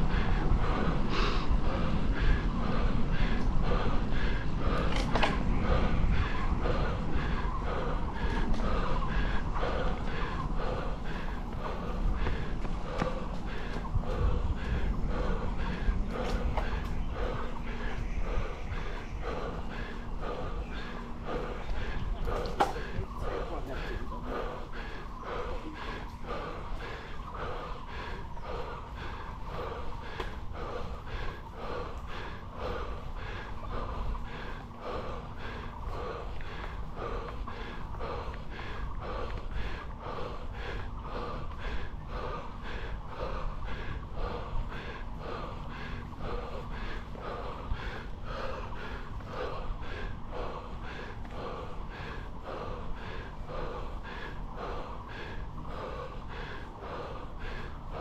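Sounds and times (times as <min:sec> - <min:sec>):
person panting hard: 0:00.0 - 0:58.0.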